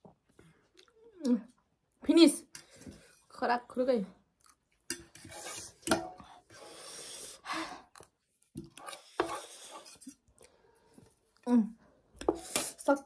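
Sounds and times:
metal fork scraping plastic plate: 8.7 - 10.2.

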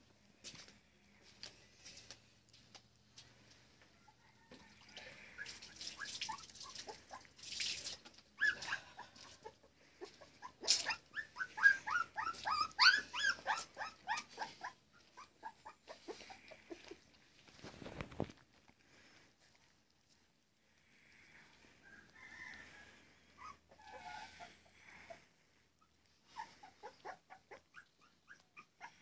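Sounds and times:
puppies whimpering and squealing: 8.4 - 17.1, 22.9 - 29.0.

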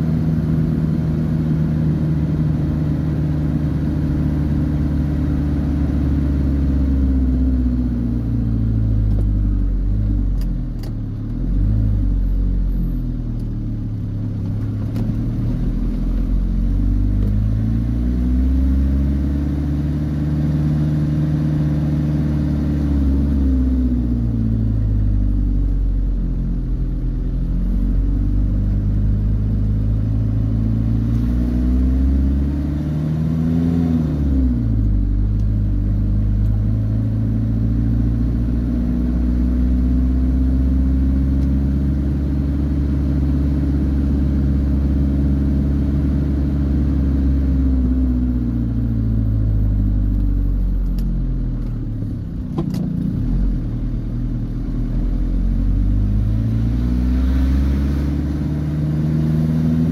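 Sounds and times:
car engine from inside cabin: 0.0 - 59.9
click: 50.1 - 51.8.

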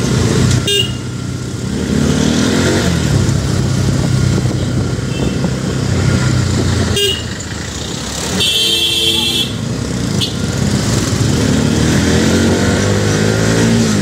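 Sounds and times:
motorcycle engine running: 2.9 - 14.0.

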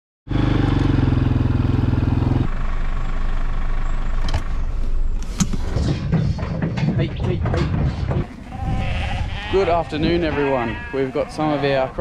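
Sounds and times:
vehicle engine running: 0.3 - 8.4
sharp knocks: 5.4 - 8.5.

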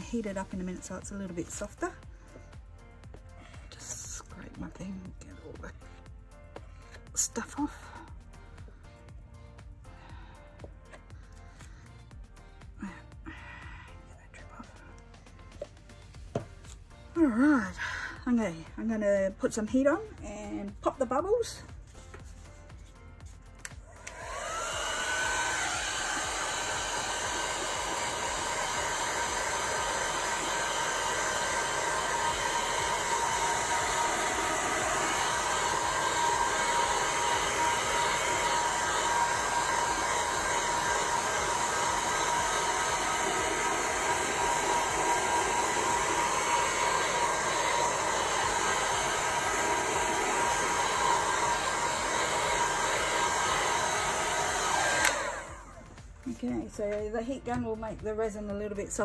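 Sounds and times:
heat gun blowing: 23.7 - 56.1.

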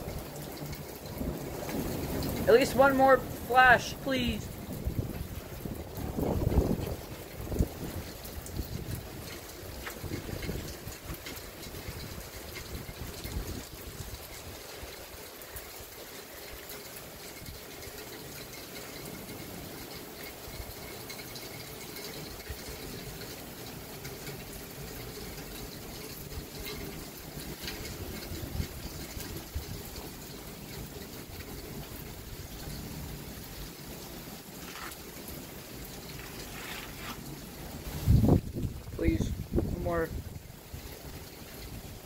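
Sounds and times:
steady rain falling: 0.0 - 42.0.

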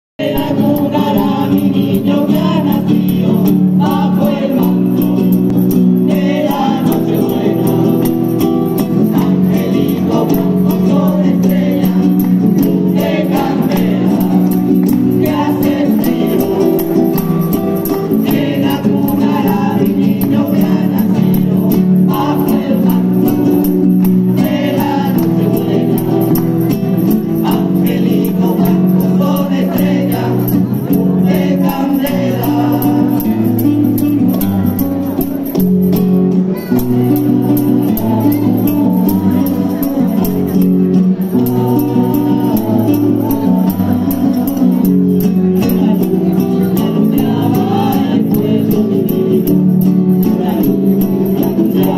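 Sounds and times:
choir singing: 0.2 - 34.9, 37.1 - 51.9
strummed guitar: 0.2 - 51.9
tambourine jingling: 0.2 - 51.9
hand clapping: 6.5 - 11.2, 11.8 - 28.7.

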